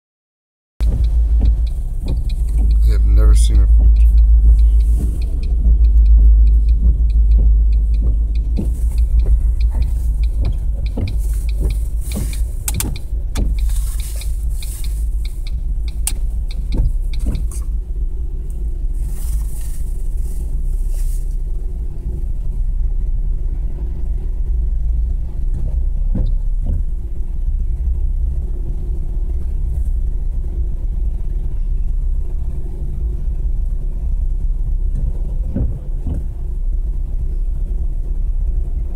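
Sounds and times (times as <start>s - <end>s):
knocks and clicks: 0.8s - 18.0s, 34.9s - 36.4s
train cars rolling: 0.8s - 21.6s
diesel locomotives rumbling by: 0.8s - 38.9s.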